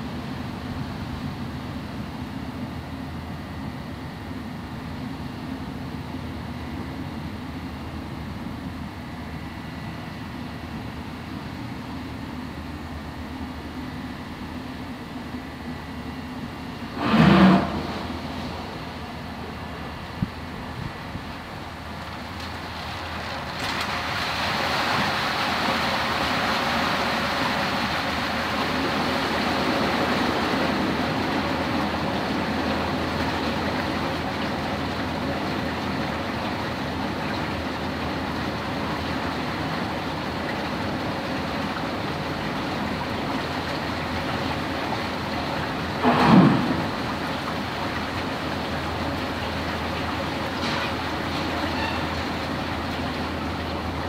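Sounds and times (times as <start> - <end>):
turbulent water rushing: 21.5 - 54.0.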